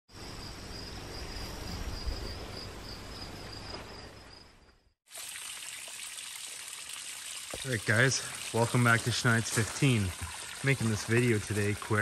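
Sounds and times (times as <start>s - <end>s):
crickets chirping: 0.1s - 5.0s.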